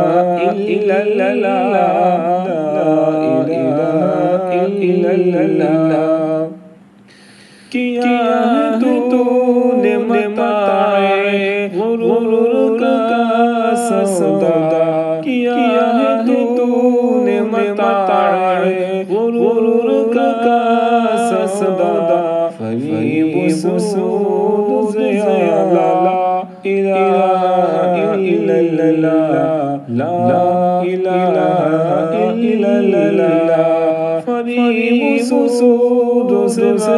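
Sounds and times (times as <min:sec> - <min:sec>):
person singing unaccompanied: 0:00.0 - 0:06.8, 0:07.6 - 0:36.9.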